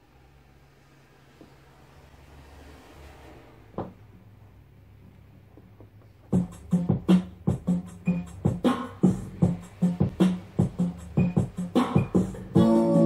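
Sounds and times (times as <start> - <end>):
record groove noise: 6.2 - 13.0.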